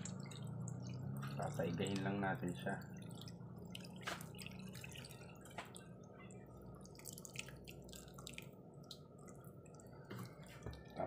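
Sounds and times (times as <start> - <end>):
liquid dripping into a pan: 0.0 - 11.0
low steady hum: 0.0 - 11.0.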